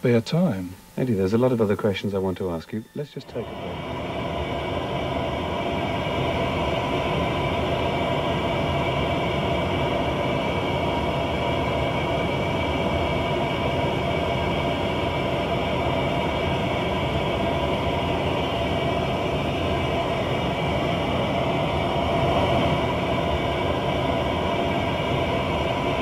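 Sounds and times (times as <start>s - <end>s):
jet engine rumble and whine: 0.0s - 26.0s.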